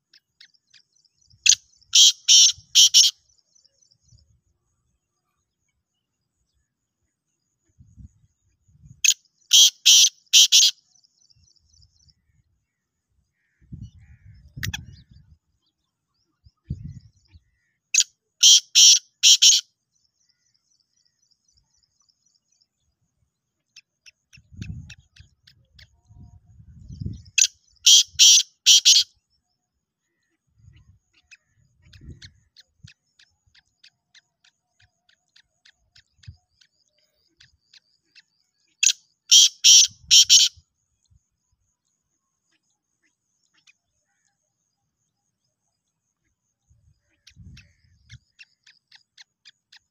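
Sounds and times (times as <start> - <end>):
loud harsh bird call: 1.5 - 3.3, 9.0 - 10.9, 17.4 - 19.7, 27.4 - 29.2, 38.8 - 40.6.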